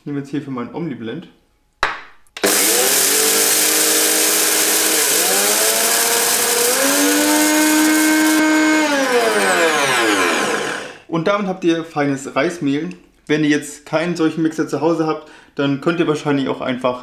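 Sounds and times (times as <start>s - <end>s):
blender motor whine: 2.4s - 11.1s.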